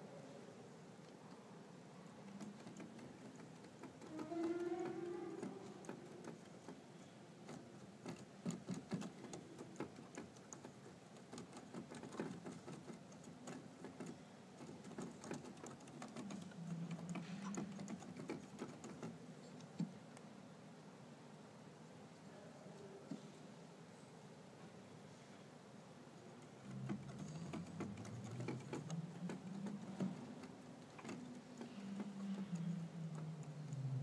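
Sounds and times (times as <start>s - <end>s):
organ clicking and tapping: 2.2s - 20.0s, 26.4s - 33.8s.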